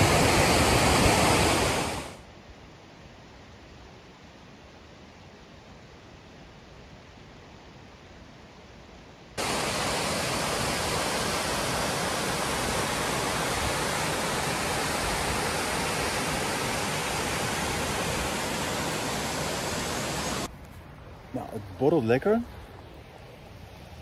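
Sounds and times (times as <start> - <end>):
waterfall rushing over rock: 0.0 - 2.2, 9.4 - 20.5
faint steady hiss: 0.0 - 24.0.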